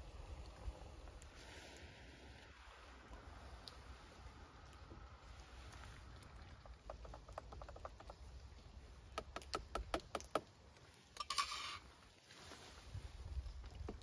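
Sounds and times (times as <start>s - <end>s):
light ticks: 3.1s - 3.8s.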